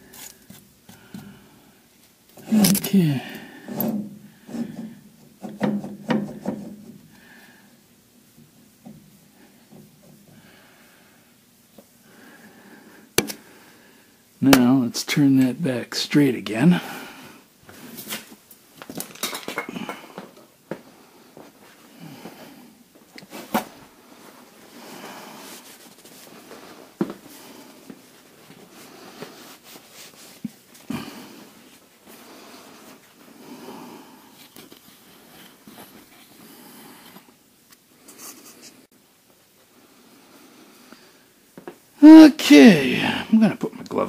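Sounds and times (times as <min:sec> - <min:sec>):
faint rustling and shuffling: 0:16.5 - 0:19.4, 0:20.0 - 0:41.9.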